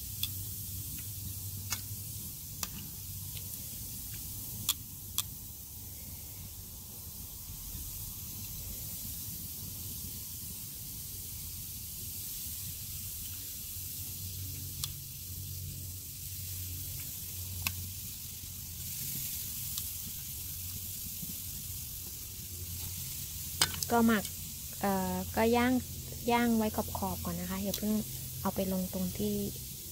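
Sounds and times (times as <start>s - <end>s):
meat sizzling on a grill: 0.0s - 29.9s
tongs clicking on metal grate: 23.6s - 23.9s.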